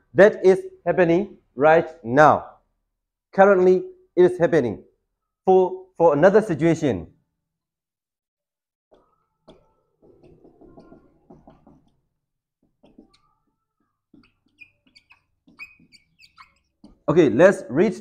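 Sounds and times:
marker scratching on whiteboard: 9.0s - 17.1s
marker squeaks: 12.6s - 17.1s.

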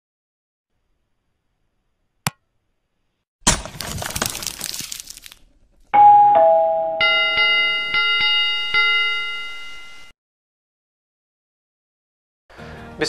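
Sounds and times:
bell strikes ringing: 6.0s - 10.1s
two-note ding-dong chime: 6.0s - 10.1s.

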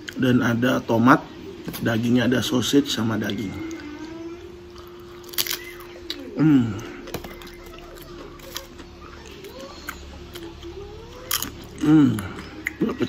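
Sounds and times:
crunchy pizza being chewed: 4.7s - 13.0s.

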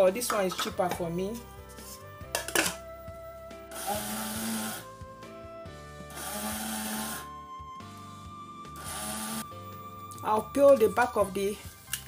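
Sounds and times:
background music: 0.0s - 12.0s
electric grinder grinding: 3.7s - 4.9s, 6.0s - 7.4s, 8.7s - 9.5s.

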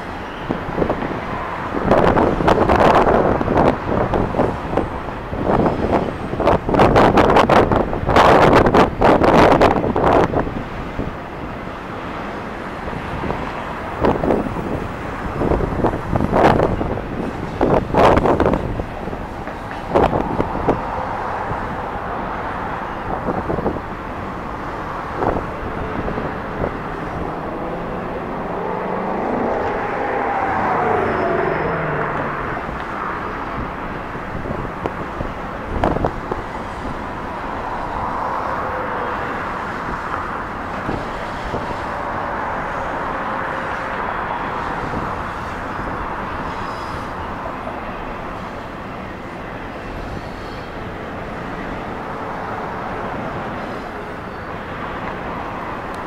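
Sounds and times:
train wheels rumbling on rail: 0.0s - 56.0s
faint wavering squeal: 25.7s - 33.2s.

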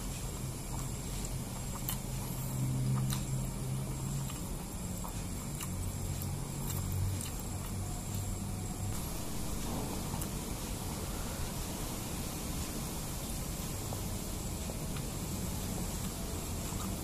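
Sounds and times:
quiet chewing: 0.0s - 10.4s, 14.6s - 17.0s
low hum: 0.0s - 17.0s
steady hiss: 0.0s - 17.0s.

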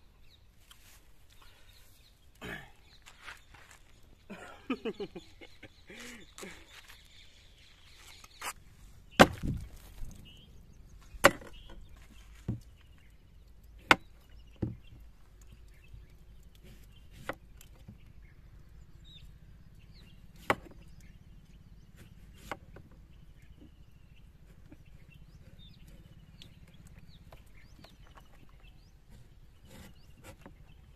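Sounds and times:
knife chopping on wooden board: 9.2s - 9.6s.

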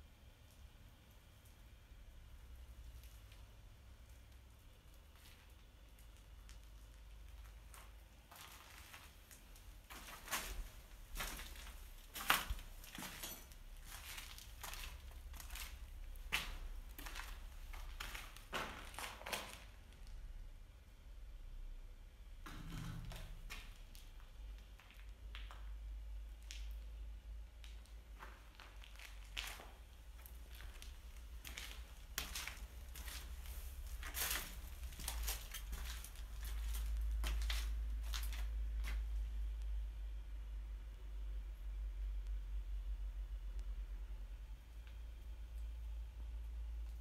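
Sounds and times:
footsteps crunching on gritty concrete: 6.9s - 19.8s, 27.7s - 39.1s.

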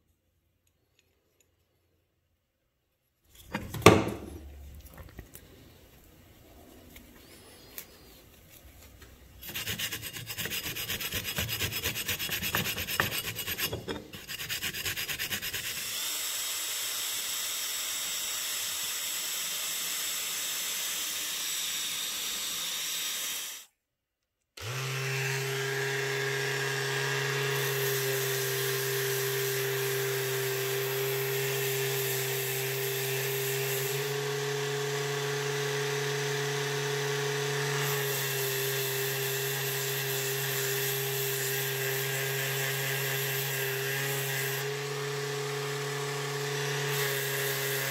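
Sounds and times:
abrasive pad scrubbing metal: 9.4s - 15.7s
drill spinning wire brush: 9.4s - 23.7s, 24.6s - 47.9s
orbital sander motor hum: 24.6s - 32.0s.

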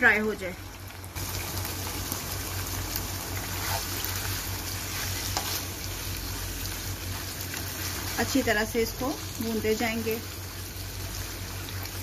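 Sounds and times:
beef sizzling in a wok: 0.9s - 12.0s
spatula tapping and scraping: 3.5s - 5.7s.

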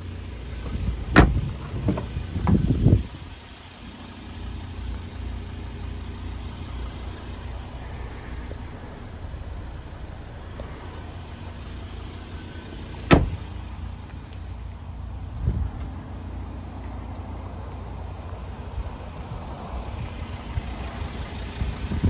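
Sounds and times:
diesel engine idling: 0.0s - 22.0s
car door shutting: 0.6s - 2.7s, 12.4s - 13.6s.

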